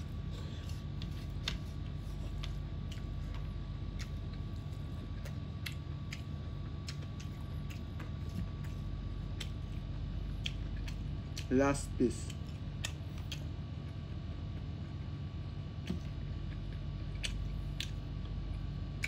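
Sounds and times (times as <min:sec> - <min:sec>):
steady low hum: 0:00.0 - 0:19.0
chewing and wet mouth clicks: 0:02.3 - 0:11.5, 0:12.2 - 0:13.6, 0:15.8 - 0:19.0.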